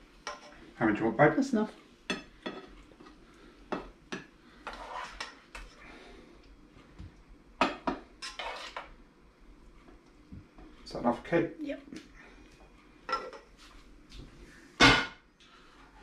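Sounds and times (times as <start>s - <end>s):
spoon scraping and clinking saucepan: 4.6s - 5.8s, 8.2s - 8.9s.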